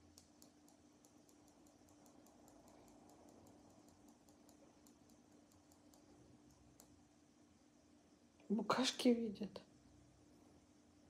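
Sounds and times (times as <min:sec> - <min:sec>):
faint rapid ticking: 0:00.0 - 0:07.0
low steady hum: 0:00.0 - 0:11.0.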